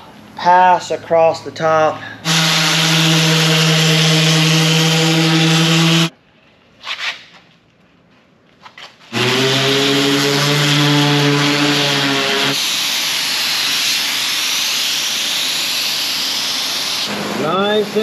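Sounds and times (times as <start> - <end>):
electric orbital sander running: 2.2 - 6.1, 9.1 - 12.7
spray gun hissing: 2.2 - 6.1, 9.1 - 18.0.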